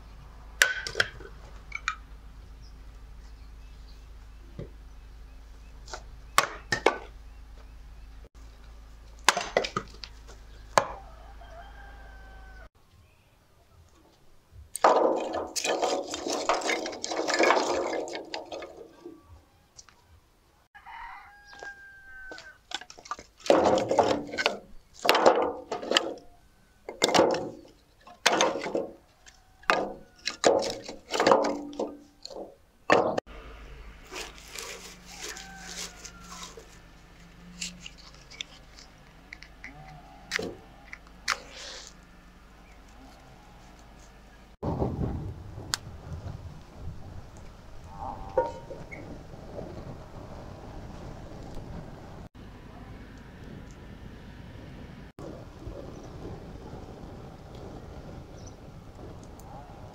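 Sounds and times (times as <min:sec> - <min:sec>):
axe chopping wood: 0:00.6 - 0:01.2, 0:06.4 - 0:07.1, 0:09.2 - 0:10.0, 0:23.4 - 0:26.2
rooster crowing: 0:10.8 - 0:12.7, 0:20.8 - 0:22.6, 0:29.0 - 0:30.4, 0:35.0 - 0:36.7.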